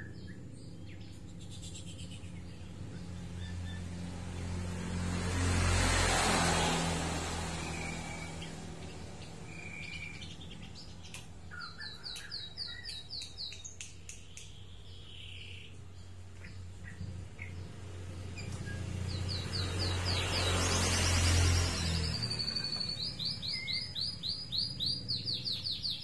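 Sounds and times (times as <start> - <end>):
bird whistling song: 0.0 - 3.8, 7.6 - 15.8, 18.4 - 26.0.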